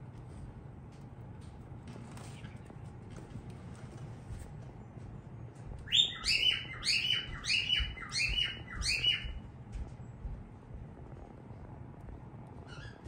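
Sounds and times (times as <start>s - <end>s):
lovebird chirping: 5.9s - 9.4s, 12.6s - 13.0s.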